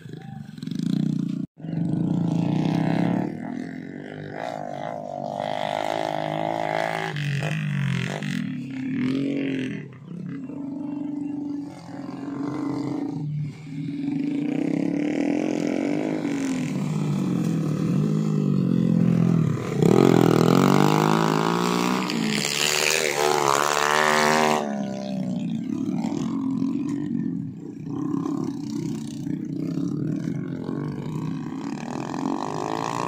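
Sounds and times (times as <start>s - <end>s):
motorbike engine revving hard: 0.0s - 33.0s
motorbike engines straining: 0.0s - 33.0s.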